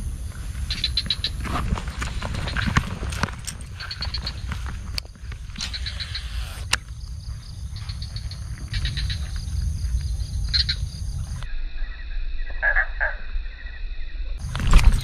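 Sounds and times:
low outdoor rumble: 0:00.0 - 0:13.2
high chirping animal chorus: 0:00.6 - 0:11.5.

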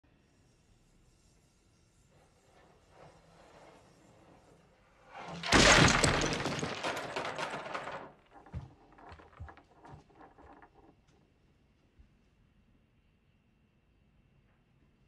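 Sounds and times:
chess pieces crashing to floor: 0:05.3 - 0:10.8
chess pieces bouncing and rolling: 0:05.4 - 0:10.9.

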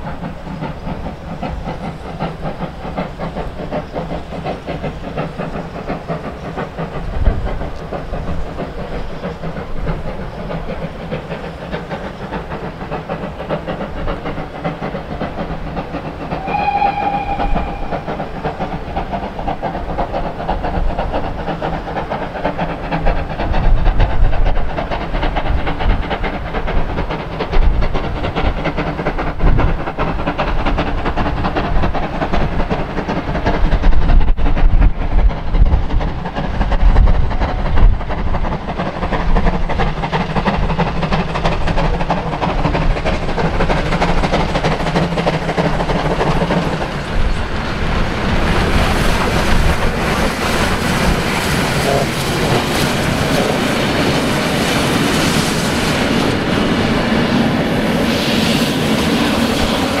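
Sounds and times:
steam train running: 0:00.0 - 1:00.0
steam locomotive whistle: 0:16.3 - 0:19.3.

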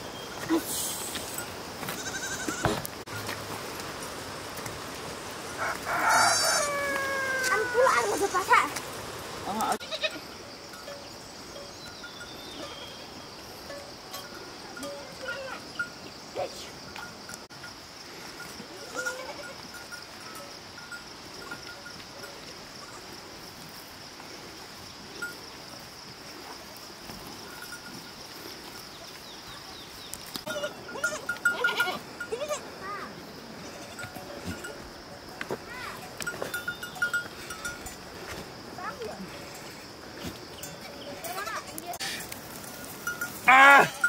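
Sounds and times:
steady high hiss: 0:00.0 - 0:44.0
goats bleating: 0:01.8 - 0:02.8, 0:05.7 - 0:08.5, 0:09.5 - 0:10.3, 0:30.5 - 0:32.8
bells jingling: 0:10.2 - 0:23.0, 0:27.4 - 0:28.5, 0:30.5 - 0:32.7, 0:33.7 - 0:38.2, 0:40.5 - 0:44.0.

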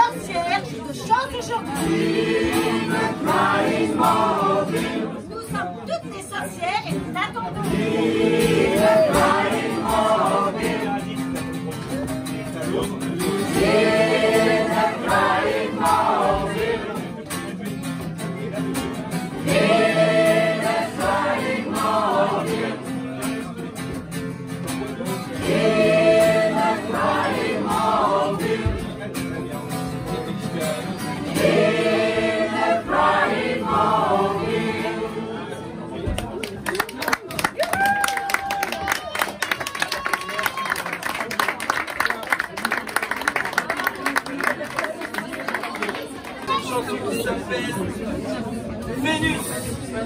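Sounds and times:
choir singing: 0:01.7 - 0:05.3, 0:07.6 - 0:11.0, 0:13.4 - 0:17.0, 0:19.4 - 0:23.1, 0:25.4 - 0:29.1, 0:31.2 - 0:35.9
strummed acoustic guitar: 0:06.9 - 0:36.2.

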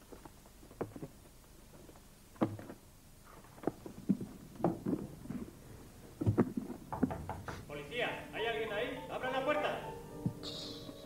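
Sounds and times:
irregular knocks and thumps: 0:02.4 - 0:02.8, 0:03.6 - 0:07.7.

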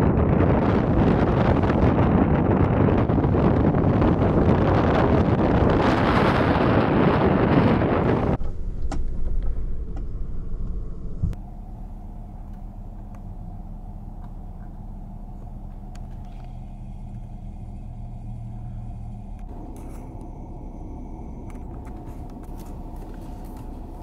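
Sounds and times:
wind buffeting microphone: 0:00.0 - 0:08.4
low vehicle rumble: 0:00.0 - 0:24.0
faint hum: 0:09.5 - 0:24.0.

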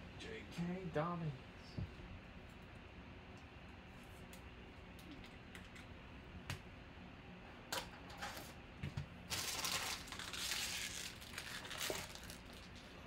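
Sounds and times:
card packs rustling and crinkling: 0:09.3 - 0:13.0.

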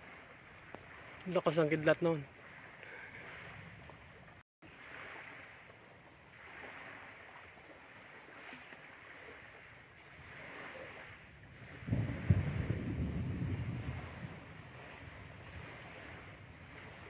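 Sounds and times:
wind buffeting microphone: 0:00.0 - 0:04.4, 0:09.1 - 0:17.0
wind blowing in gusts: 0:00.0 - 0:17.0.

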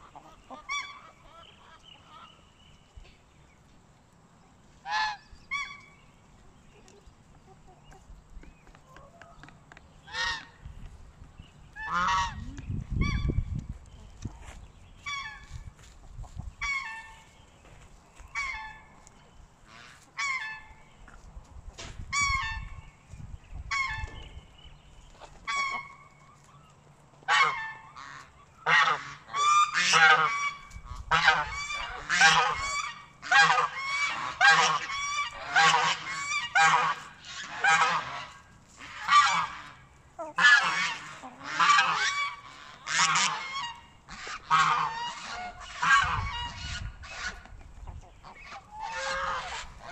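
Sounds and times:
geese honking: 0:00.0 - 0:02.4, 0:04.8 - 0:06.0, 0:10.0 - 0:10.7, 0:11.7 - 0:13.4, 0:18.3 - 0:19.0, 0:19.6 - 0:20.8, 0:25.2 - 0:26.5, 0:27.2 - 0:49.9.

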